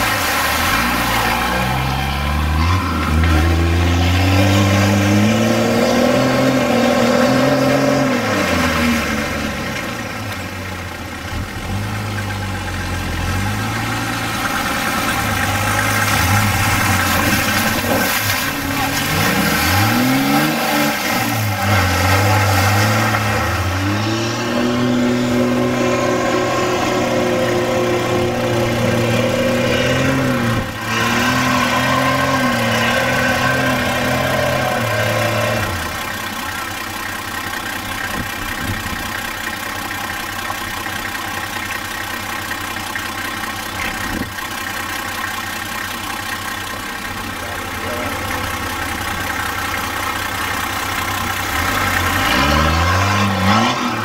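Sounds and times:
off-road vehicle engine revving: 0:00.0 - 0:54.0.

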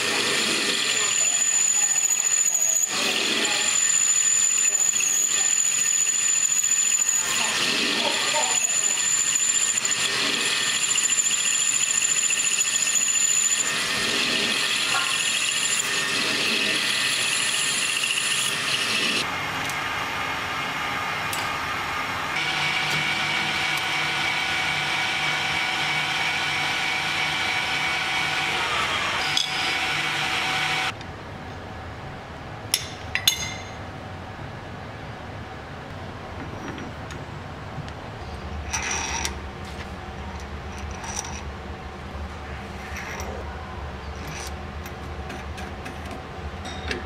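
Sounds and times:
metal lathe humming: 0:00.0 - 0:19.3, 0:22.3 - 0:31.0.

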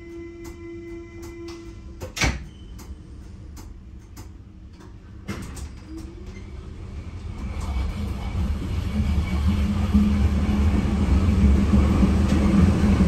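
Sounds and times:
train running noise: 0:00.0 - 0:02.2, 0:02.8 - 0:13.0
train doors shutting with thump: 0:01.2 - 0:03.0, 0:04.2 - 0:06.4.

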